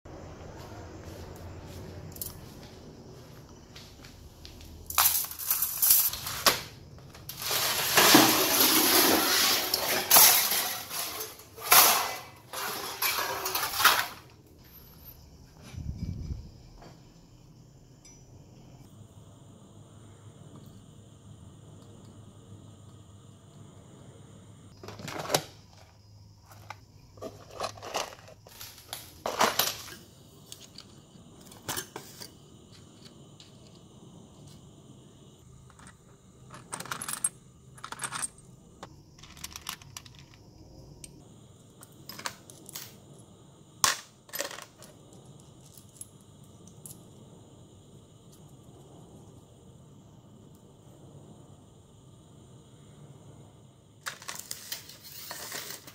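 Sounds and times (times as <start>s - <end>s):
small steel parts clinking: 4.9s - 6.5s, 7.1s - 15.2s, 35.7s - 38.5s, 39.2s - 40.4s, 43.8s - 47.0s
faint high hum: 13.1s - 24.7s.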